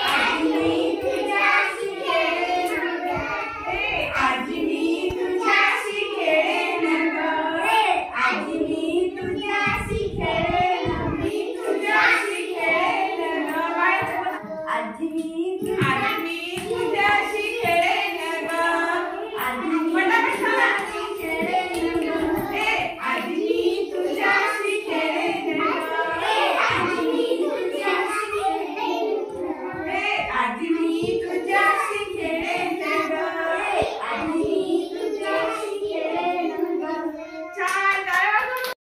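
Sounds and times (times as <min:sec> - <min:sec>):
children singing together: 0:00.0 - 0:37.7
clapping: 0:37.6 - 0:38.8.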